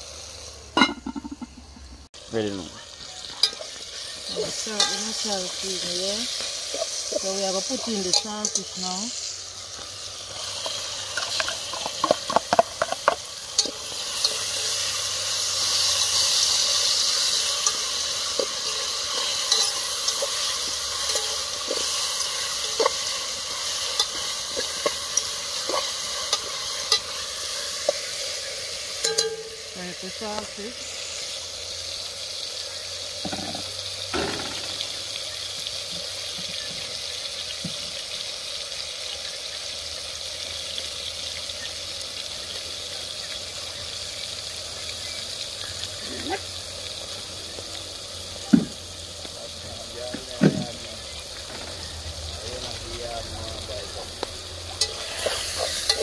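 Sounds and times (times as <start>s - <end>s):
food sizzling in a pot: 0.0s - 56.0s
spoon scraping a metal pot: 15.8s - 27.2s.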